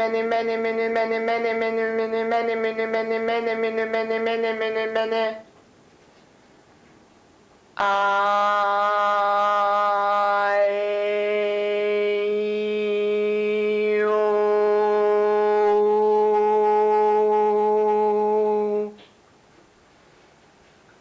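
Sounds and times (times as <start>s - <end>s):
person chanting a long note: 0.0s - 5.5s, 7.8s - 19.0s.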